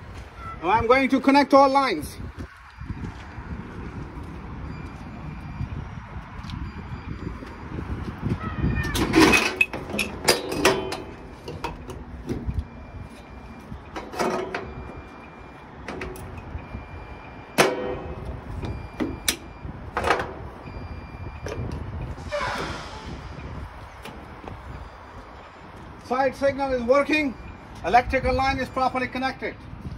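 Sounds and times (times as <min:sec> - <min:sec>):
metal connectors clanking and clicking: 0:08.9 - 0:12.6, 0:13.9 - 0:14.9, 0:15.8 - 0:16.6, 0:17.6 - 0:20.4.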